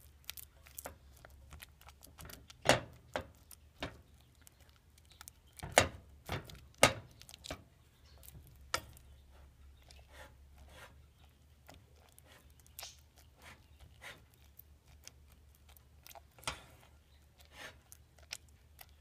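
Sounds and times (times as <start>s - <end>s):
utensil scraping metal pot: 8.5s - 11.1s, 16.2s - 18.0s.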